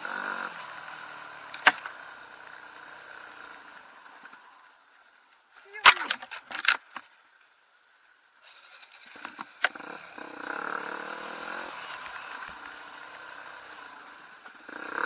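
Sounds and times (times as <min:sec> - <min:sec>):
dirt bike engine running: 0:00.0 - 0:05.4, 0:08.4 - 0:15.0.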